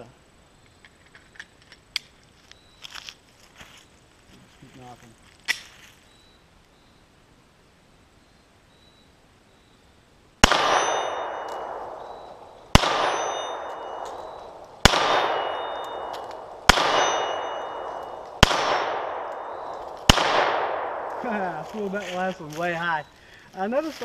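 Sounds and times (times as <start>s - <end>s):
pistol shots echoing: 10.4s - 21.7s.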